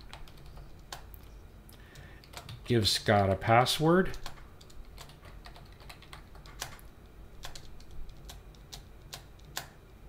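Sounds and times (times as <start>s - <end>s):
computer keyboard keystrokes: 0.0s - 1.3s, 1.9s - 2.7s, 4.1s - 9.8s.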